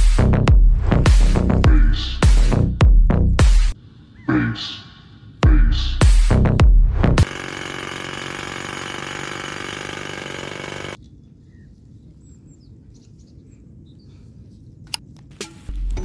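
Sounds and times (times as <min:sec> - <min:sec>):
faint bird chirps: 0:11.1 - 0:14.3.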